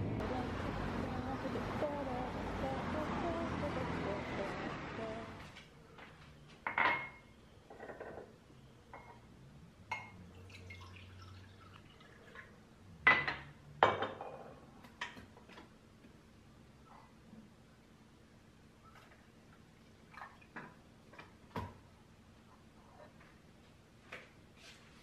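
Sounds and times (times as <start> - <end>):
kitchenware clinking on countertop: 6.6 - 8.3, 13.0 - 15.3.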